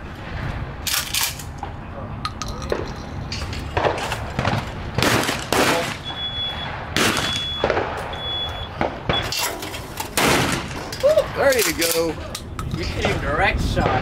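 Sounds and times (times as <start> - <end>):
gunshots with ringing tail: 3.7 - 9.3, 10.2 - 11.4.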